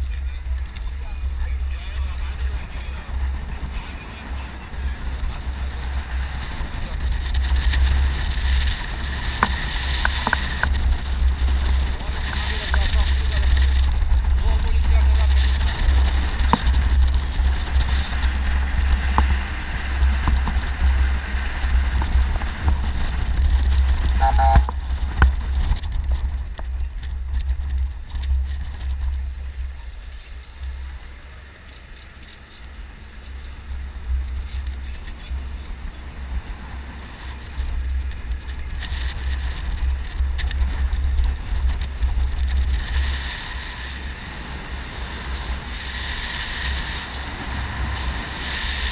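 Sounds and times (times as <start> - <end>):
vehicle rumble: 0.0 - 48.9
wind buffeting microphone: 0.0 - 48.9.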